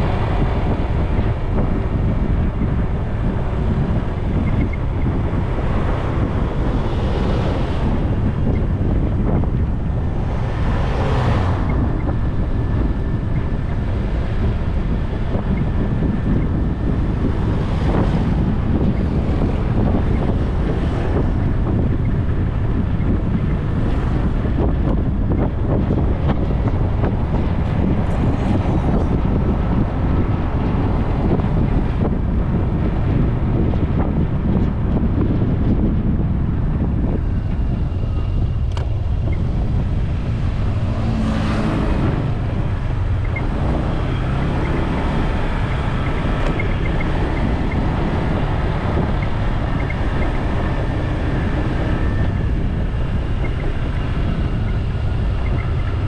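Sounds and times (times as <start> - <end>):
road noise: 0.0 - 56.0
wind buffeting microphone: 0.0 - 56.0
vehicle passing: 5.3 - 15.0, 36.5 - 56.0.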